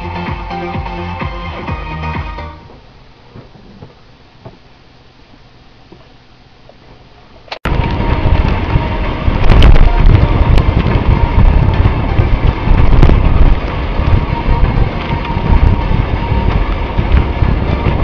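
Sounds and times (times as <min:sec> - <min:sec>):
vehicle rumbling on road: 0:01.9 - 0:18.0
faint steady whine: 0:02.6 - 0:18.0
wind buffeting microphone: 0:07.6 - 0:18.0.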